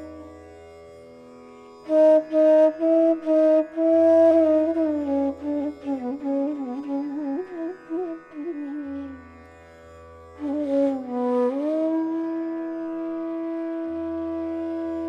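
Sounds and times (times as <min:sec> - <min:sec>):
flute melody: 0:01.9 - 0:09.2, 0:10.4 - 0:15.0.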